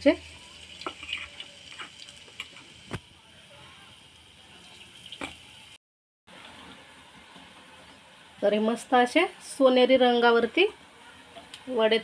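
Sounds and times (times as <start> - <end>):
food frying in hot oil: 0.0 - 10.8.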